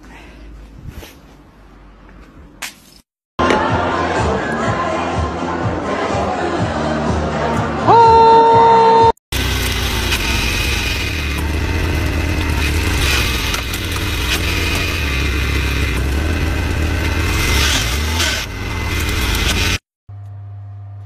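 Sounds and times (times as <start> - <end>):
log splitter engine running: 9.3 - 19.8
wood scraping and cracking: 9.4 - 19.8.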